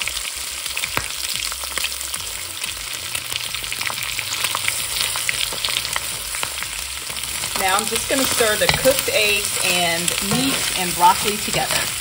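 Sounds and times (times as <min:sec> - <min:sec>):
eggs sizzling in oil: 0:00.0 - 0:12.0
small pops and crackles: 0:00.8 - 0:01.8.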